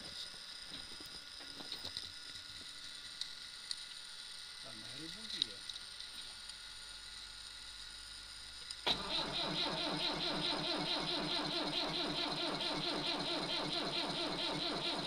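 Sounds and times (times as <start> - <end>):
tractor engine starting: 8.9 - 15.0.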